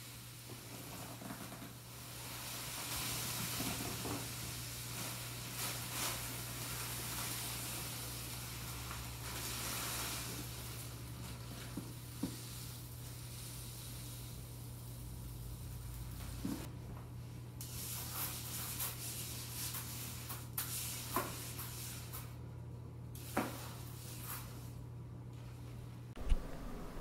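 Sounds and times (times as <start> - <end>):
cat litter pouring into plastic box: 2.0 - 14.3.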